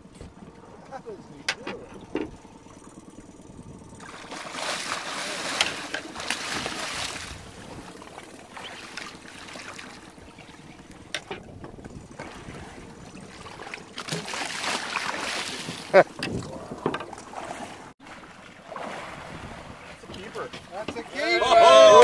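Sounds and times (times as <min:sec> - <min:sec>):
fish splashing in water: 0:04.0 - 0:10.7, 0:12.2 - 0:16.0, 0:17.2 - 0:19.8.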